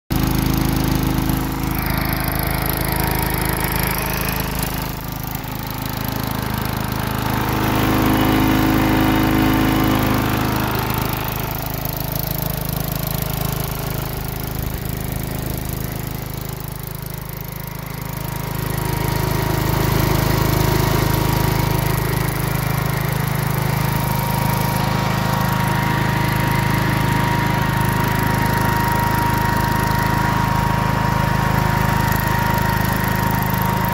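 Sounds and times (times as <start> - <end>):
tractor engine running: 0.1 - 33.9
steady thin whine: 1.4 - 7.8.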